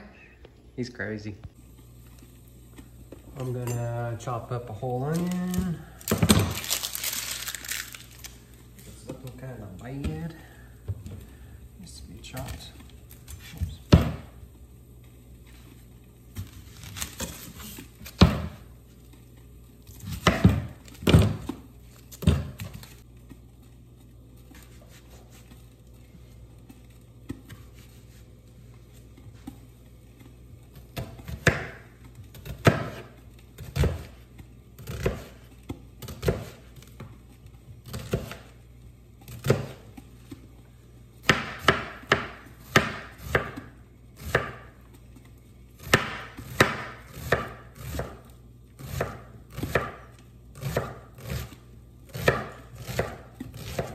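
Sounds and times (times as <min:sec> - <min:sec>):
knife chopping on cutting board: 0:13.4 - 0:14.3, 0:18.1 - 0:18.6, 0:20.0 - 0:21.6, 0:30.8 - 0:34.2, 0:34.8 - 0:37.1, 0:37.8 - 0:38.5, 0:39.3 - 0:40.0, 0:41.2 - 0:44.7, 0:45.8 - 0:53.9.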